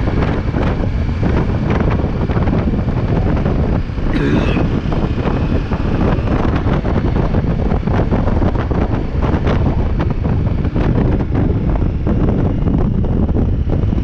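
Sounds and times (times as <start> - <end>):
wind buffeting microphone: 0.0 - 14.0
motorcycle engine running: 4.7 - 14.0.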